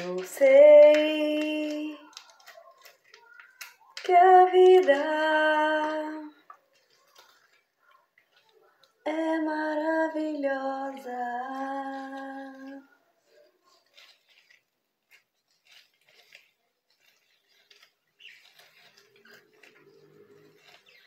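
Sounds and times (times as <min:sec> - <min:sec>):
woman singing: 0:00.0 - 0:02.1, 0:04.0 - 0:06.4, 0:09.0 - 0:12.9.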